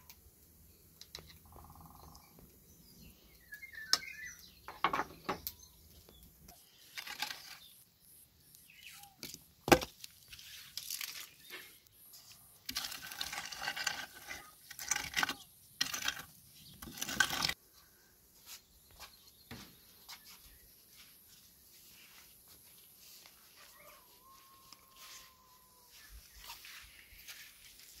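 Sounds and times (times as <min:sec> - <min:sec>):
rake scraping embers and ash: 0:05.4 - 0:17.6.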